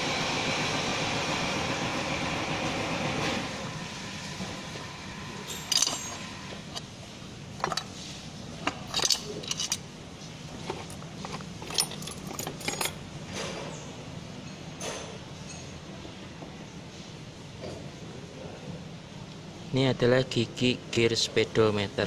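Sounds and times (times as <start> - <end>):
metal parts clinking in a tray: 5.5 - 6.2, 7.6 - 7.9, 8.6 - 9.8, 10.6 - 13.0.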